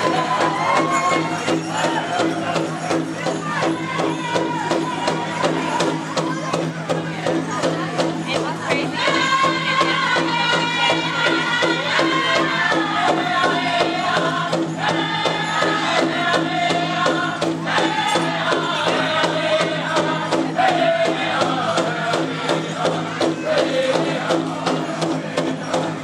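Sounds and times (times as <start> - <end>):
quick drumbeat on large drum: 0.0 - 26.0
group chanting in high pitch: 8.9 - 25.5.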